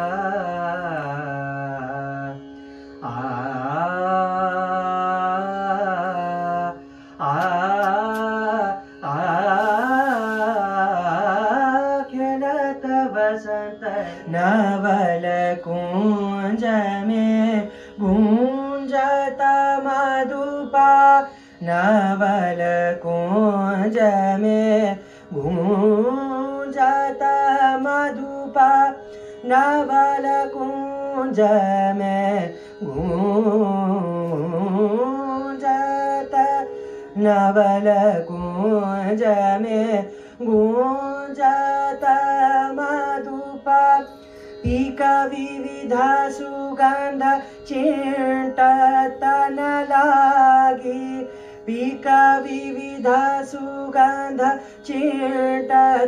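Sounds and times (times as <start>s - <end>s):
man singing ornamented phrases: 0.0s - 56.0s
steady drone: 6.4s - 12.4s.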